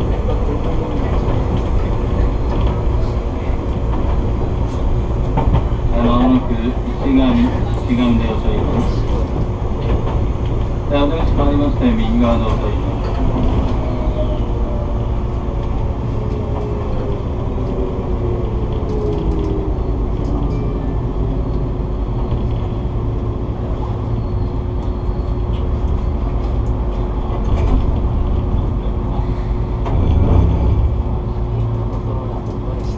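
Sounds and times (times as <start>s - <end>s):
train motor hum: 0.0s - 32.9s
train wheels rumbling on rails: 0.0s - 32.9s
light clicks and creaks: 15.5s - 20.7s.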